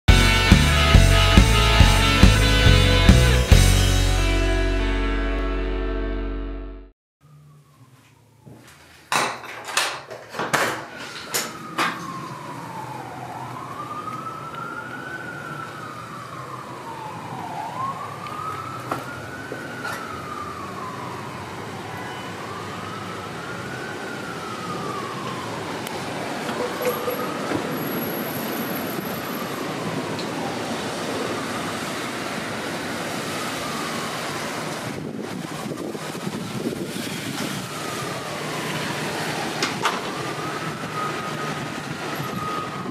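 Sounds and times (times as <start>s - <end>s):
emergency siren wailing: 0.1s - 6.6s, 7.2s - 8.8s, 10.8s - 42.9s
street noise hiss: 12.4s - 42.4s.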